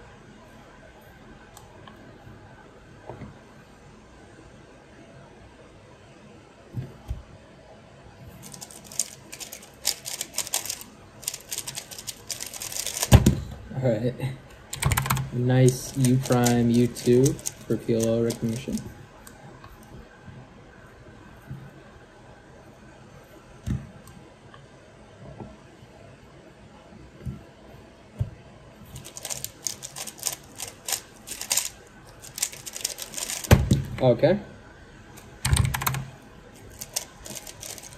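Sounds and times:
puzzle cube clicking: 29.0 - 33.6.

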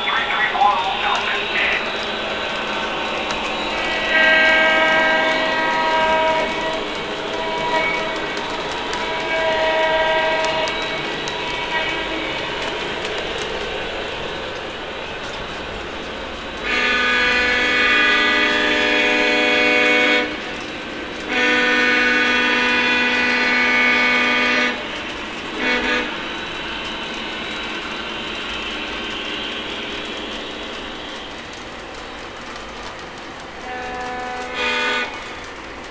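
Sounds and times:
model train rolling and motor noise: 0.0 - 35.9
model train horn blasts: 3.9 - 12.3, 16.6 - 20.4, 21.2 - 24.9, 25.6 - 26.2, 33.6 - 35.2.

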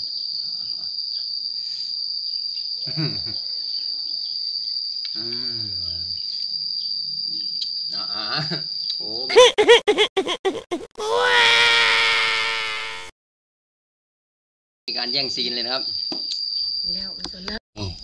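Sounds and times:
insect high-pitched buzz: 0.0 - 13.1, 14.9 - 18.0
faint human vocal sounds: 5.2 - 6.0.

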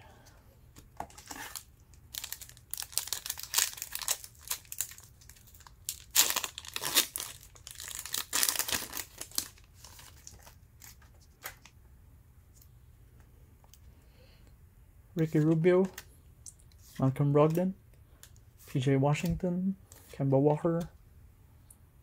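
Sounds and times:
wrapper tearing and crinkling: 1.3 - 11.0.

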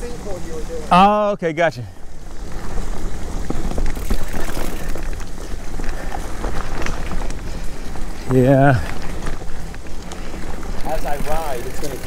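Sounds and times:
bike rattling and clicking: 0.0 - 12.0
bike tyres on dirt: 0.0 - 12.0.

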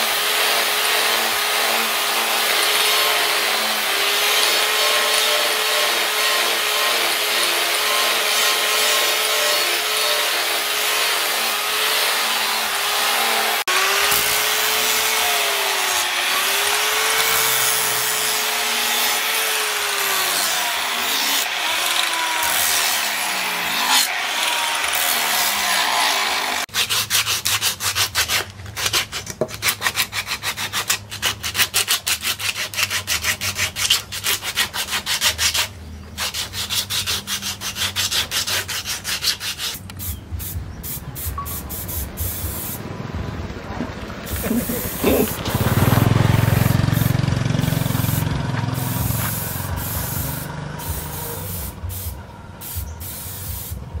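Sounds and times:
angle grinder grinding metal: 0.0 - 35.4, 44.3 - 51.8
spray can hissing: 39.7 - 42.8, 44.3 - 45.6, 48.0 - 53.9.

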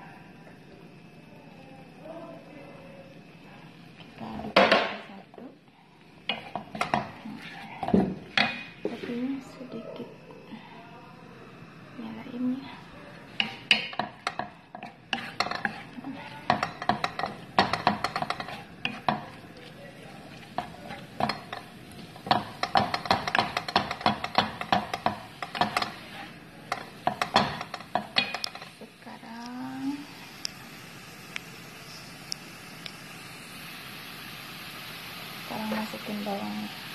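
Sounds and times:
spatula tapping a pan: 6.3 - 7.2, 7.8 - 8.8, 13.4 - 28.8
wooden spatula scraping a pan: 6.3 - 9.3, 13.3 - 28.8.

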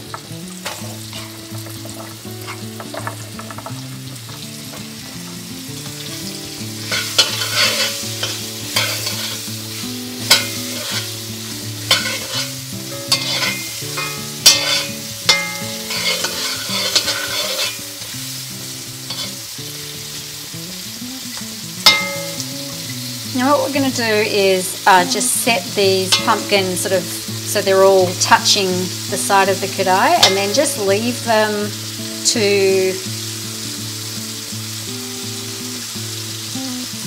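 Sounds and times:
light frying sizzle: 0.0 - 37.0
metal spatula scraping a pan: 0.6 - 3.7, 6.7 - 18.4, 19.0 - 19.5, 25.0 - 31.3.

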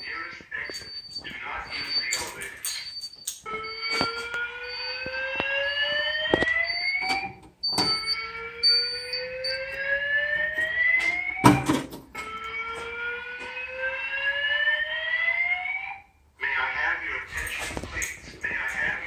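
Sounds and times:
fire alarm rising whoop: 3.2 - 11.6, 12.2 - 16.1.

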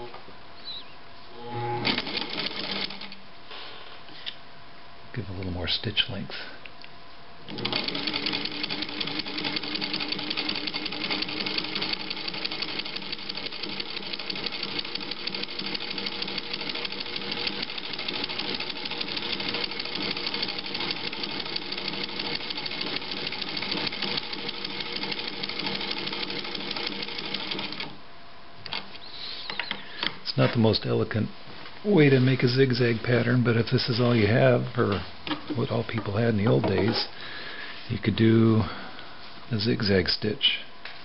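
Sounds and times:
sewing machine running: 1.5 - 3.2, 7.5 - 28.0.

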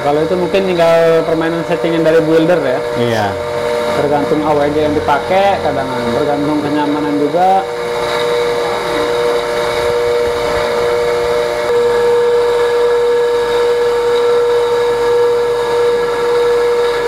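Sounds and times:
coil-winding machine motor whine: 0.0 - 17.0.

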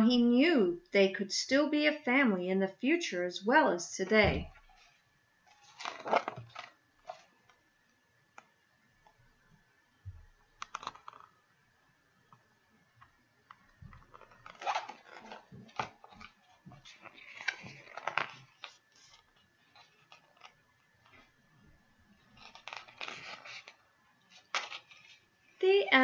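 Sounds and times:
paper pages rustling: 4.7 - 7.6, 10.6 - 11.3, 13.0 - 21.4, 22.1 - 25.3.

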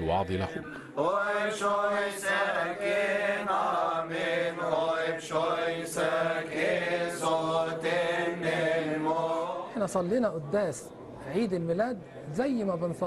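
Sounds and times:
men singing liturgical chant: 0.4 - 10.0.

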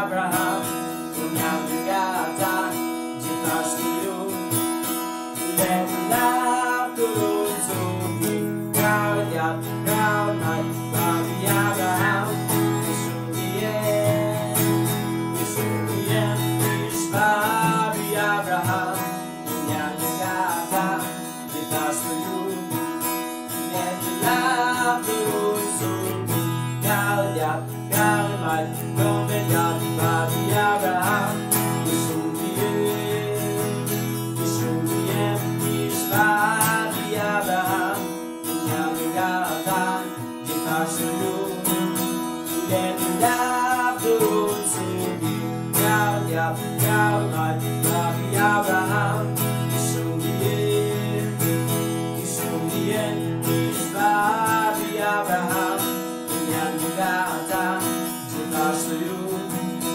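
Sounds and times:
acoustic guitar strumming: 0.0 - 59.9
man singing: 0.0 - 59.9.

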